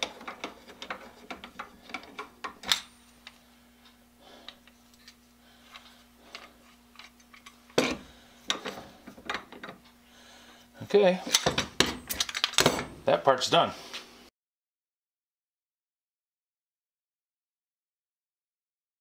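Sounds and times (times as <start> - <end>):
metal parts clicking and tapping: 0.0 - 3.4, 11.3 - 12.9
faint steady hum: 0.0 - 14.3
metal clunk: 11.3 - 13.1.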